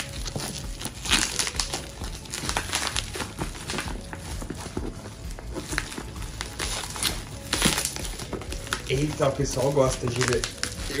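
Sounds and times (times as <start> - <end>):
packaging tearing: 0.0 - 4.0, 5.6 - 11.0
bubble wrap crinkling: 0.0 - 11.0.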